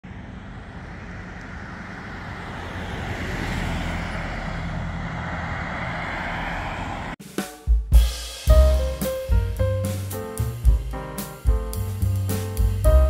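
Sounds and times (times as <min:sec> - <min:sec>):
cars driving past: 0:00.0 - 0:07.2.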